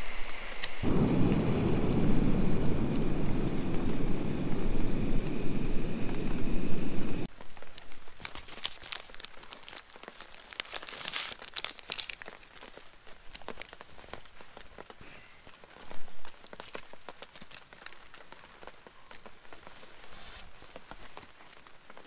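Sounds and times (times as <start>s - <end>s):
gas stove burning: 0.0s - 7.3s
sachet crinkling and tearing: 7.4s - 14.8s, 15.7s - 19.6s.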